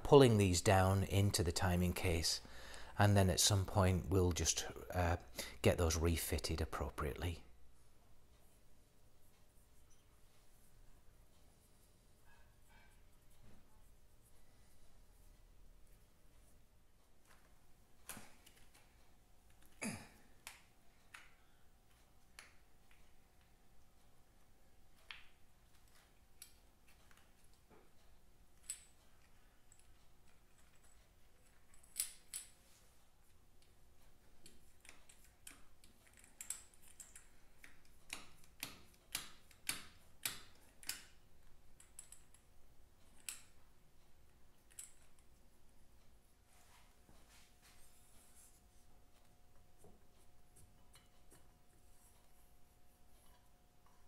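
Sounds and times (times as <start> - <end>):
metal clicks and taps: 34.4 - 43.6.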